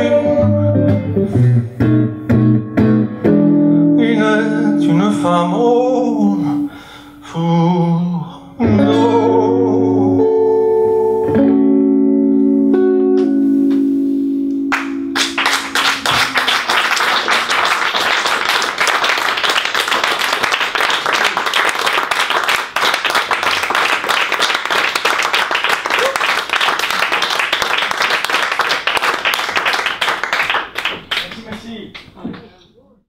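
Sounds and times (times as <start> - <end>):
electric guitar chord: 8.6 - 16.5
audience applauding: 14.7 - 32.2.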